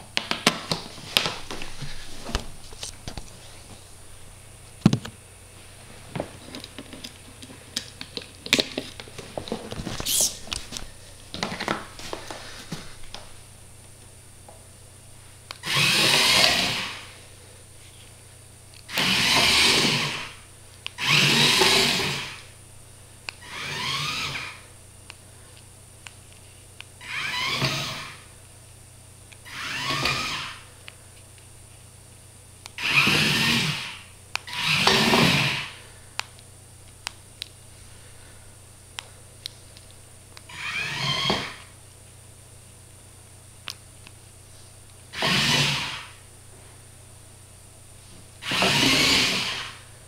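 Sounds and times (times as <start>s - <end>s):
small electric motors whirring: 15.5s - 17.2s, 18.8s - 22.5s, 23.3s - 24.6s, 27.0s - 28.3s, 29.4s - 30.7s, 32.7s - 35.8s, 40.4s - 41.7s, 45.1s - 46.2s, 48.4s - 49.8s.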